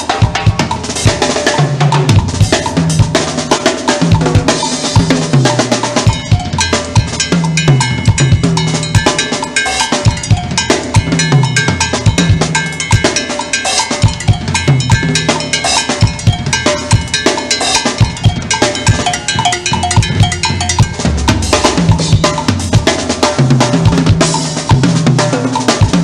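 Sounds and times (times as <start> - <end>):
drum kit solo: 0.0 - 26.0
bell-like metal strikes: 5.8 - 23.0.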